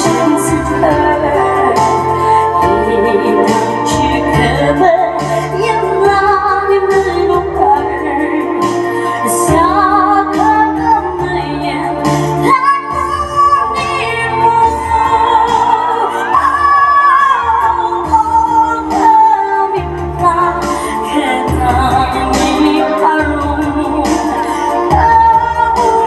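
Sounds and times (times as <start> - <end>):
band playing: 0.0 - 26.0
woman singing into a microphone: 0.0 - 26.0.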